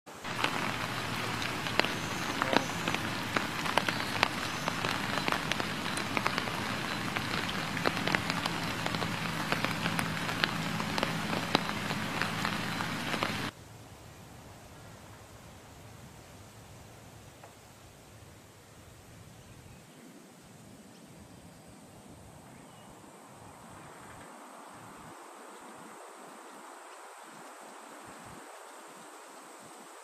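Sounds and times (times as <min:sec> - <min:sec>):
raindrops ticking close by: 0:00.1 - 0:13.6
steady rain: 0:00.1 - 0:19.4, 0:24.2 - 0:30.0.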